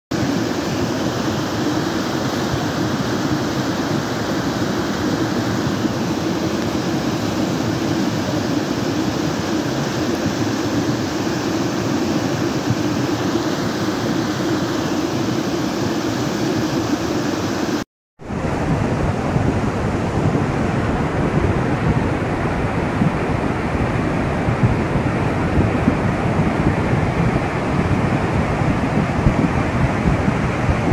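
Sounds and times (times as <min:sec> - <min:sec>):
water rushing: 0:00.1 - 0:30.9.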